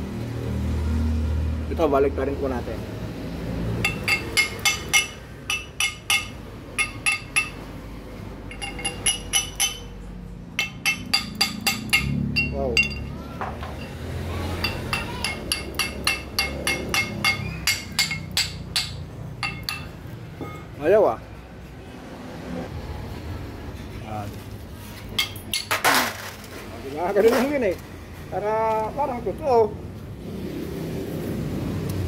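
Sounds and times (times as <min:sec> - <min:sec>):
hammer tapping on steel: 0:03.8 - 0:07.7, 0:08.5 - 0:09.9, 0:10.6 - 0:13.1, 0:14.6 - 0:20.7.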